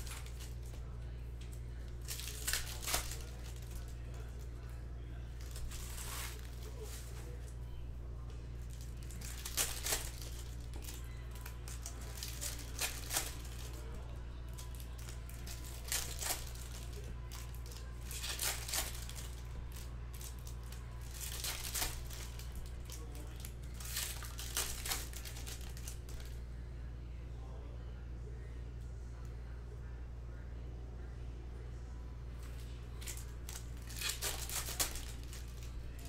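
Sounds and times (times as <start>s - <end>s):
low steady hum: 0.0s - 36.0s
card wrappers crinkling and tearing: 1.7s - 4.7s, 5.4s - 7.4s, 8.6s - 26.4s, 32.4s - 36.0s.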